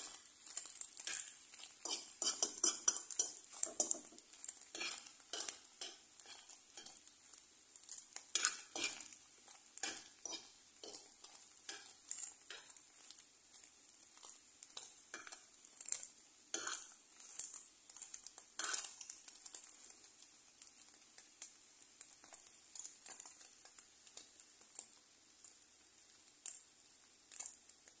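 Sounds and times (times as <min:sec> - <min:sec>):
fork scraping and tapping a pan: 0:00.0 - 0:07.1, 0:07.8 - 0:19.8
eggs sizzling: 0:00.0 - 0:28.0.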